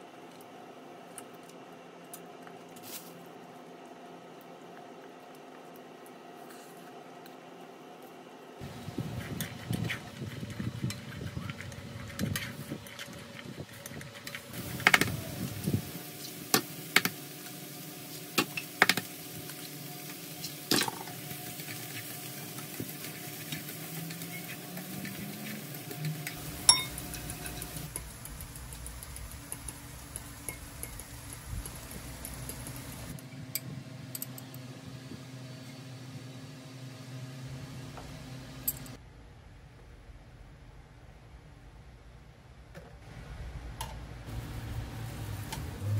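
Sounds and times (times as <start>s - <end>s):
egg sizzling quietly: 14.4s - 33.2s
vegetables sizzling in pan: 14.6s - 33.2s, 44.3s - 45.9s
chopsticks scraping a pan: 19.5s - 27.9s.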